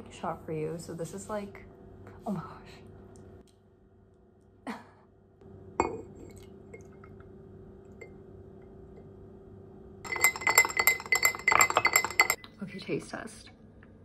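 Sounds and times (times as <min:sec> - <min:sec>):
spoon clinking in glass: 0:05.8 - 0:07.0, 0:10.1 - 0:12.4
cup clinking against glass: 0:05.8 - 0:07.2, 0:10.1 - 0:12.4.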